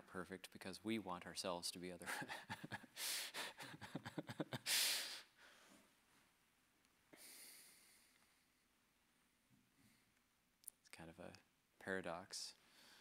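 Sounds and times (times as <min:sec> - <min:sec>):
man breathing: 0:02.8 - 0:06.0, 0:07.1 - 0:08.6, 0:12.6 - 0:13.0.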